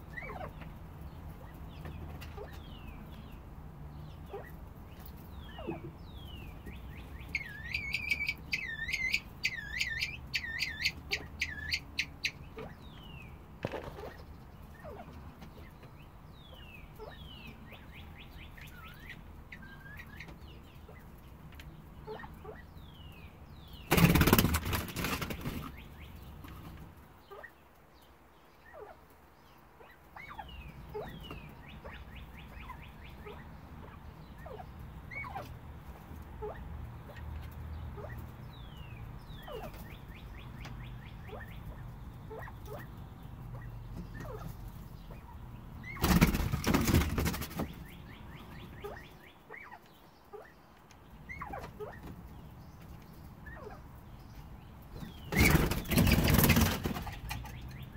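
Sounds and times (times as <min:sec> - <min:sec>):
quail chirping: 0:00.0 - 0:57.9.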